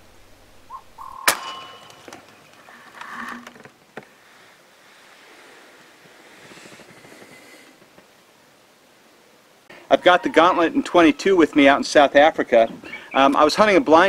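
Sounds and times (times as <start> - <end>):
air rifle shot: 1.2 - 2.1.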